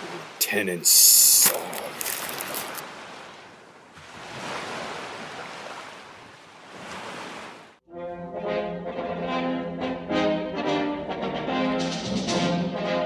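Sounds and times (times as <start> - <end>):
ocean waves washing: 0.0 - 7.8
brass music: 7.9 - 13.0.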